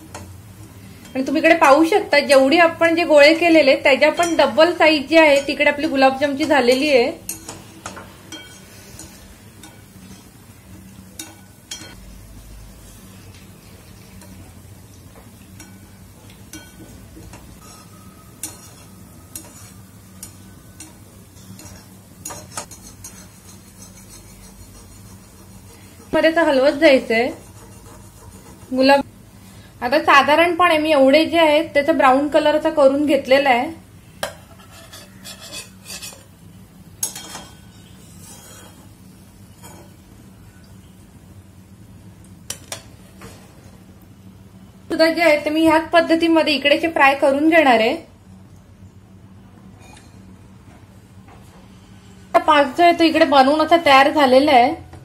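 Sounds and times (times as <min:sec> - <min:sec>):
oil sizzling: 0:00.0 - 0:30.4, 0:31.5 - 0:44.3
metal spoon scraping a pan: 0:04.1 - 0:12.0, 0:15.6 - 0:29.1, 0:34.3 - 0:36.3, 0:37.0 - 0:40.0.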